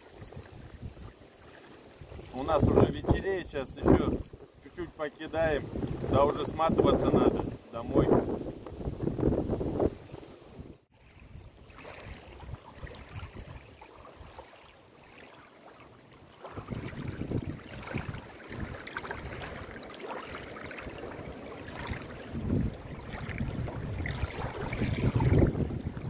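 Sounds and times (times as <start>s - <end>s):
waves lapping on stony bank: 0.0s - 26.0s
wind buffeting microphone: 2.0s - 14.3s, 16.5s - 19.7s, 21.8s - 26.0s.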